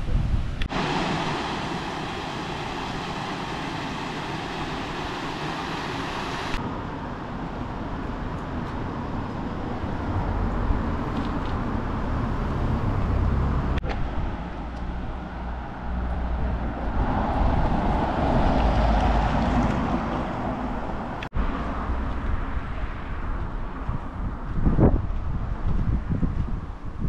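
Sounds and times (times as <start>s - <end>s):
car passing: 8.5s - 24.3s
steady low rumble: 13.8s - 27.0s.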